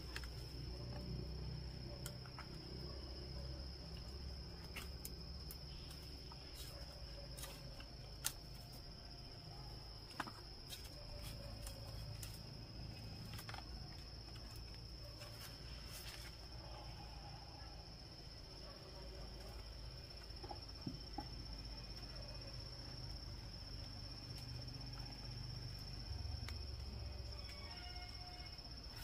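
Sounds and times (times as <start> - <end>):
insects shrilling: 19.4 - 29.0.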